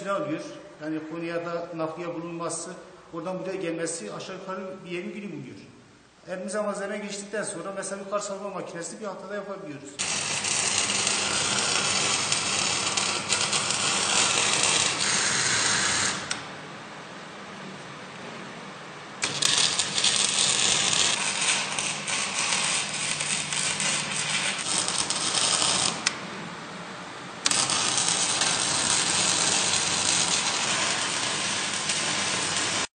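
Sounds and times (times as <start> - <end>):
welding arc crackling: 10.0 - 16.5, 19.2 - 26.2, 27.4 - 32.9.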